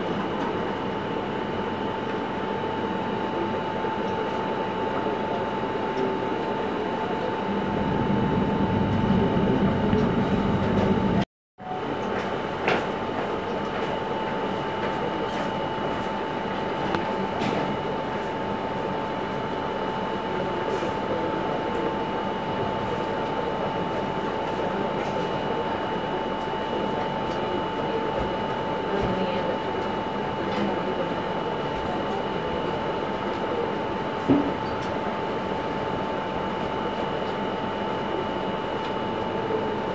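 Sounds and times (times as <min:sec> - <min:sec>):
machine hiss and whine: 0:00.0 - 0:11.2.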